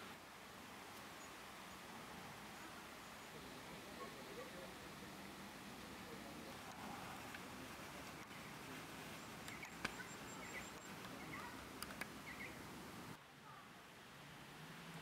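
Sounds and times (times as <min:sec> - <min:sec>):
faint outdoor ambience: 0:00.0 - 0:15.0
soft bird chirps: 0:08.2 - 0:12.7
sharp clicks: 0:09.4 - 0:12.2.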